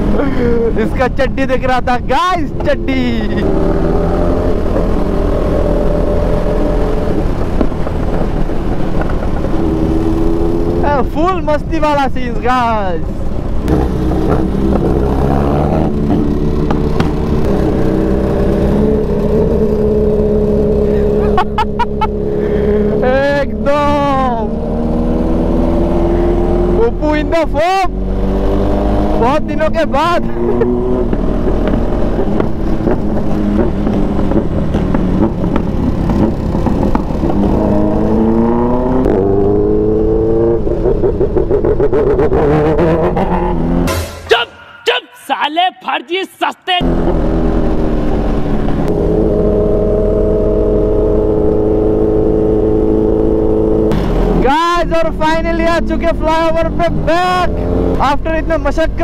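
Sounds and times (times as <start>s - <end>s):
motorcycle engines running: 0.0s - 43.9s, 46.8s - 59.0s
motorcycle engine running: 12.8s - 26.9s, 30.5s - 38.2s.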